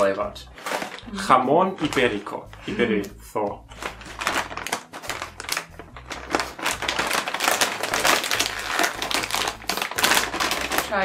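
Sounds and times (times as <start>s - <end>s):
chip bag crinkling: 1.8s - 2.4s, 3.7s - 11.0s.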